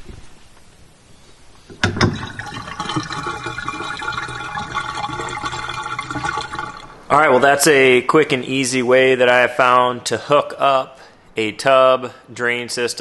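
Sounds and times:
water gurgling down a drain: 1.7 - 7.4.

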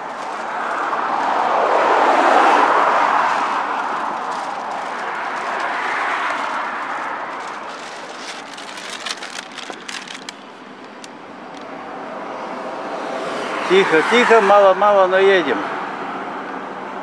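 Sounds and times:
vehicle road noise: 0.0 - 17.0
light clicks and rattles: 3.9 - 11.7.

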